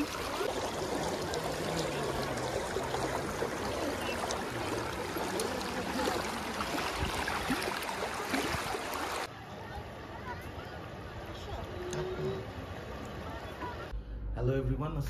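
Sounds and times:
river water rushing over stones: 0.0 - 9.3.

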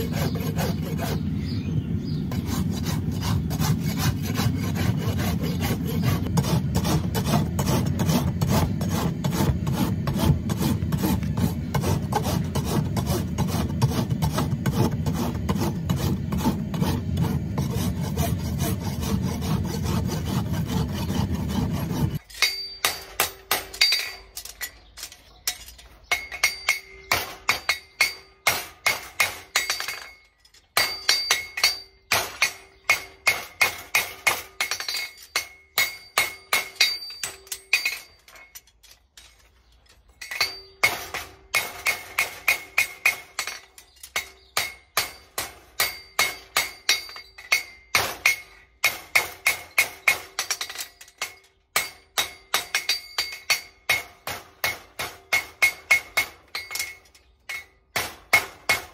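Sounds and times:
hammer striking horseshoe on anvil: 22.1 - 38.7, 40.2 - 58.9.

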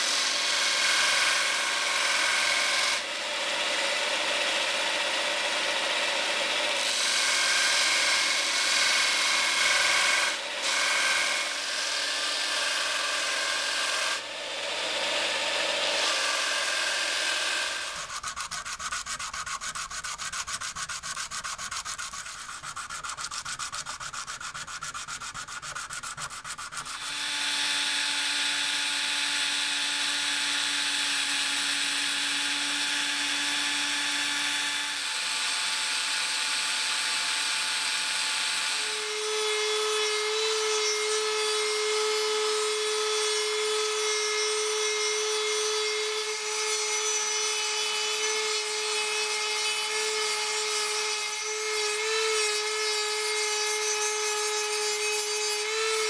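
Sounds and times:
rotary tool motor whine: 0.0 - 18.4, 26.5 - 56.0
sanding rasp: 6.8 - 14.2, 15.1 - 34.8, 38.8 - 56.0.

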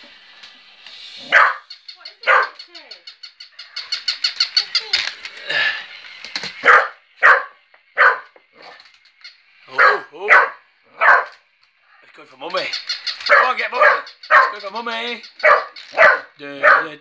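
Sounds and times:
high-pitched toy pulses: 0.7 - 8.8
dog barking: 1.2 - 2.6, 6.6 - 8.8, 9.7 - 11.4, 13.2 - 14.7, 15.4 - 17.0.

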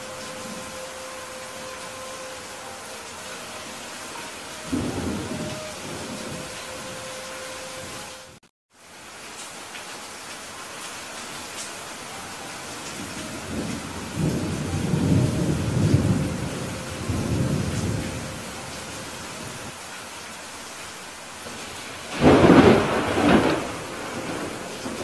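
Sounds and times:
steady rain: 0.0 - 25.0
thunder rumbling and cracking: 13.0 - 18.3, 21.5 - 25.0.

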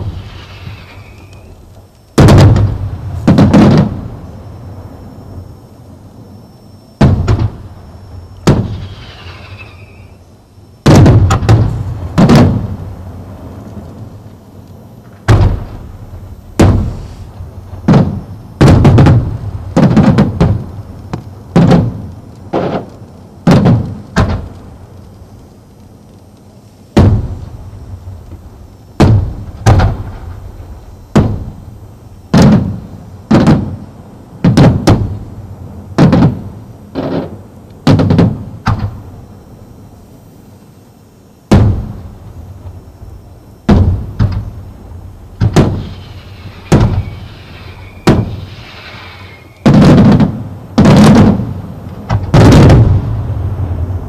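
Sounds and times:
firework shells bursting: 0.0 - 4.2, 7.0 - 10.2, 15.0 - 25.3, 26.2 - 35.2, 41.5 - 53.8.

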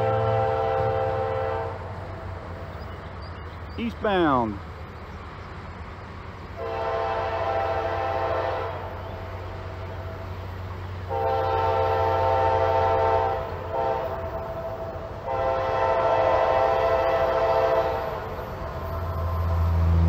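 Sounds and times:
locomotive air horn: 0.0 - 2.1, 6.6 - 10.2, 11.0 - 18.4
train rumble: 0.0 - 20.0.

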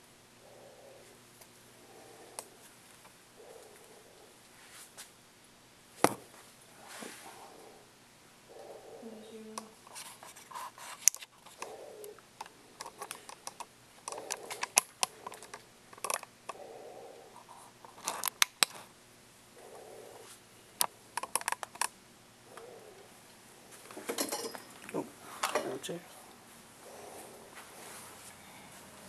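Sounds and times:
soft rustling: 2.2 - 5.2, 6.2 - 7.7, 24.9 - 29.0.

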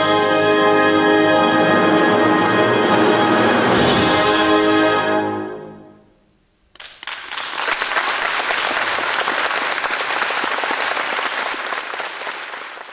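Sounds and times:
audience applauding: 6.8 - 12.9.

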